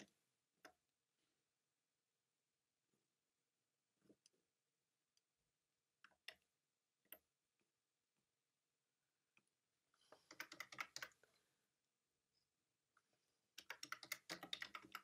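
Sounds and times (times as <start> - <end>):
computer mouse clicks: 10.1 - 11.2, 13.6 - 15.0
keyboard typing: 10.2 - 11.2, 13.6 - 15.0.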